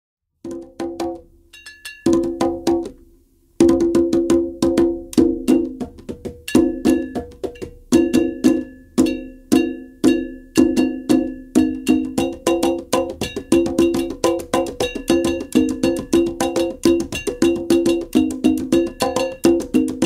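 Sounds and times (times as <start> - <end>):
hand drums rhythm: 0.4 - 20.0
ringing metallic tone: 1.5 - 2.1, 8.0 - 12.2.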